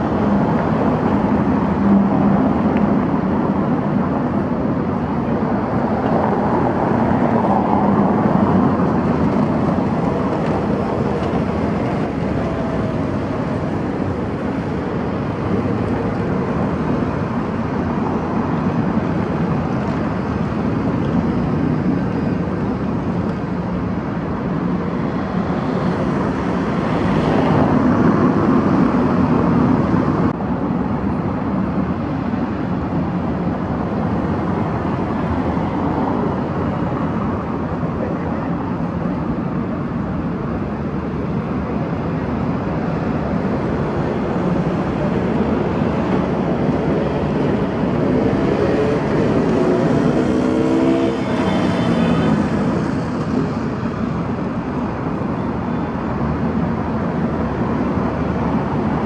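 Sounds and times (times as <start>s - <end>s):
cars passing on paved road: 0.0s - 59.0s.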